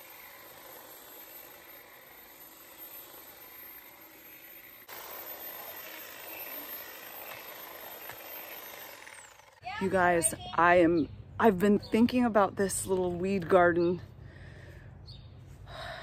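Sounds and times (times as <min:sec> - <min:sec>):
electric hedge trimmer running: 0:00.0 - 0:10.1.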